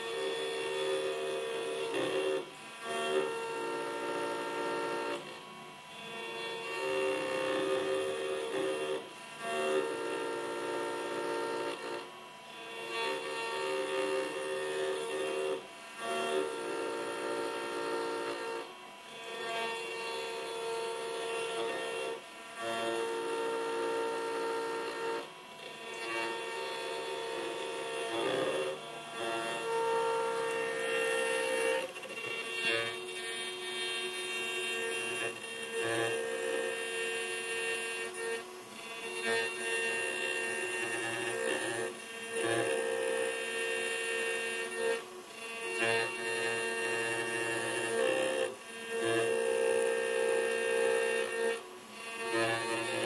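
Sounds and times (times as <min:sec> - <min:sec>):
cutter rasping on metal: 0:00.0 - 0:53.0
pitched machine hum: 0:00.0 - 0:53.0
router spindle high whine: 0:00.0 - 0:53.0.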